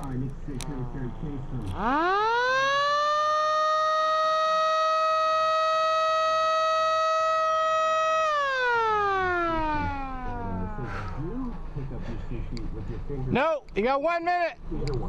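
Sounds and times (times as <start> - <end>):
electric motor siren wailing: 1.6 - 11.7.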